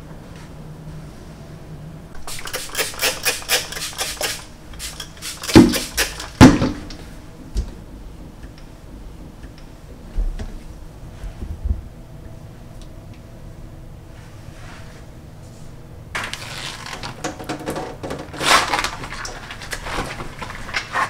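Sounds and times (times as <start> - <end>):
cloth scrubbing metal faucet: 2.3 - 6.4.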